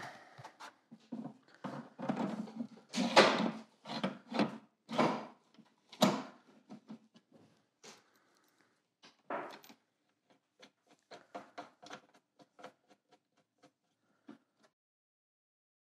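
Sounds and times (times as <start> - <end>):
hard plastic scrapes and knocks: 0.0 - 5.3.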